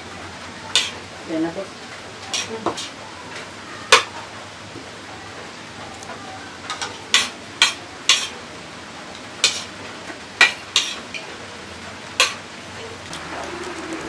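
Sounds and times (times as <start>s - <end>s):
spoons clinking against plates: 0.7s - 1.0s, 6.7s - 8.4s, 9.4s - 9.7s, 10.4s - 11.4s, 12.2s - 13.6s.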